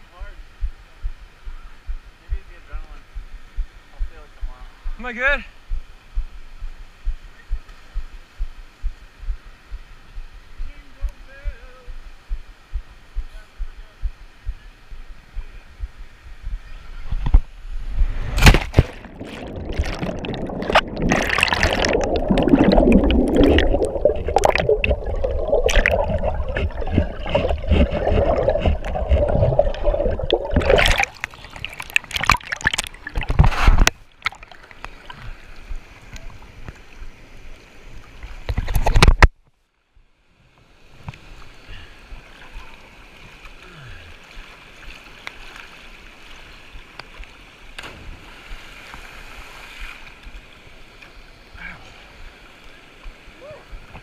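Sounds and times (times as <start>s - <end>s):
underwater whitewater rushing: 17.7s - 35.8s
waterfall rushing: 19.0s - 32.7s.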